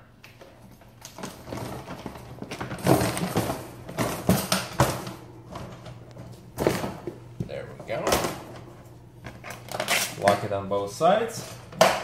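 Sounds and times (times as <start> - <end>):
wire cage rattling and clanking: 1.1 - 6.0.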